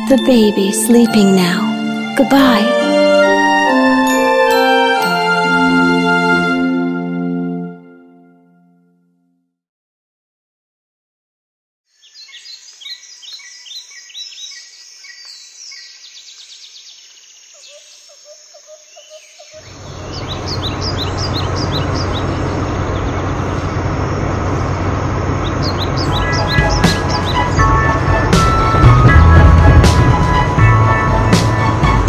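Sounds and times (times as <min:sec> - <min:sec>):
birds chirping: 0:12.0 - 0:32.0
cartoon buggy engine: 0:19.7 - 0:32.0.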